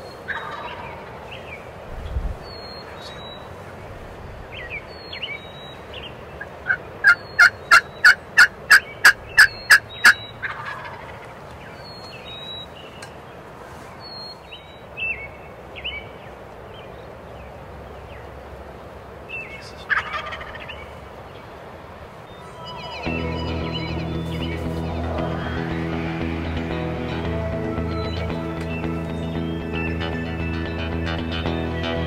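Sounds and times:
turkey yelping: 0.3 - 1.2, 6.4 - 11.4, 19.7 - 20.8, 22.3 - 26.2
turkey gobble: 0.3 - 1.3, 6.4 - 11.4, 19.5 - 20.9.

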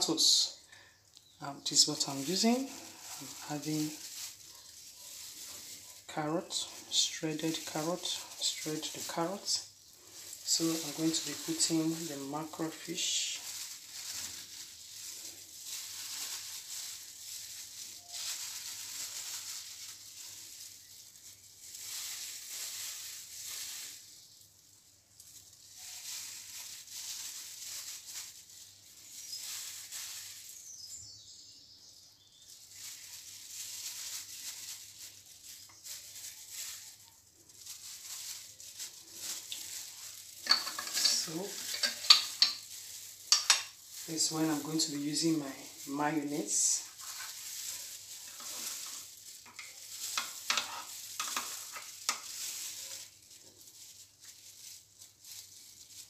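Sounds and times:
plastic gloves crinkling: 0.0 - 56.0
utensils clicking and knocking: 40.4 - 42.6, 43.3 - 43.7.

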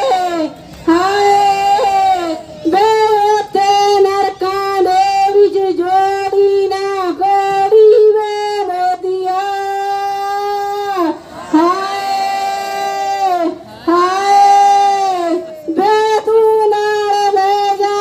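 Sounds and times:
woman wailing a sung lament: 7.4 - 18.0.

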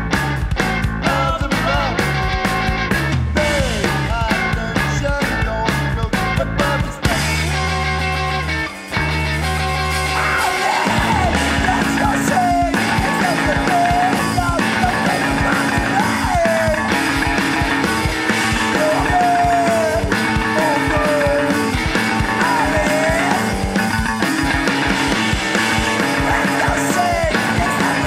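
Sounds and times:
pulsing drum beat: 0.0 - 28.0
person singing sliding vocal: 10.1 - 16.9, 18.4 - 23.7, 25.9 - 28.0.

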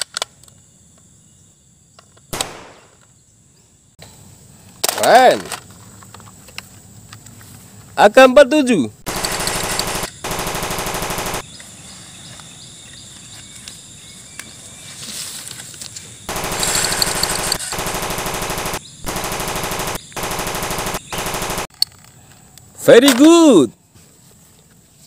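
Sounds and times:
toy machine-gun sound effect: 9.1 - 11.4, 16.3 - 21.7.

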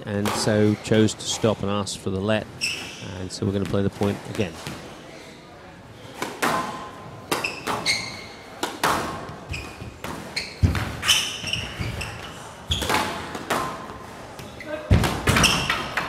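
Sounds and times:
sports shoes squeaking: 2.4 - 16.0
squash ball cracks off walls: 8.5 - 11.0, 14.9 - 16.0.

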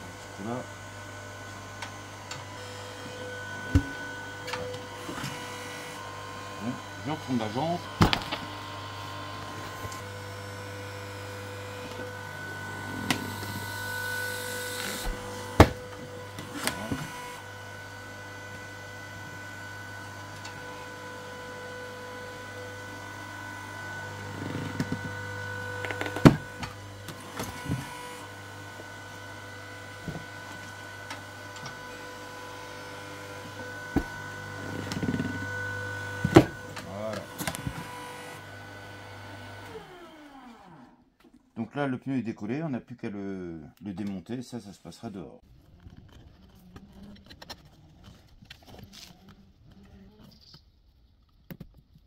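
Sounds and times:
motor humming: 0.0 - 41.0.

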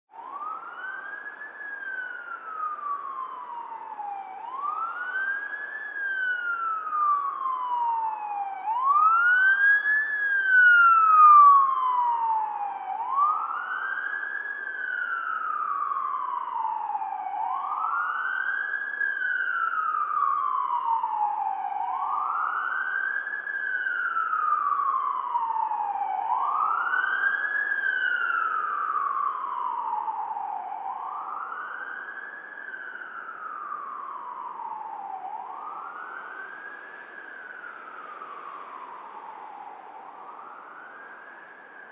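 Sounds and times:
emergency siren wailing: 0.1 - 41.9.

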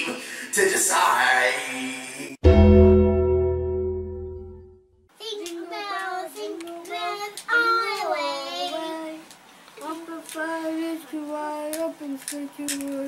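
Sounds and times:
child singing unaccompanied: 5.2 - 13.0.

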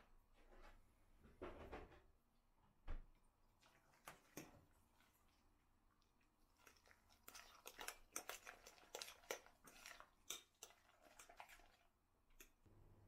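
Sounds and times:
fork mashing spread in glass bowl: 3.6 - 12.6.

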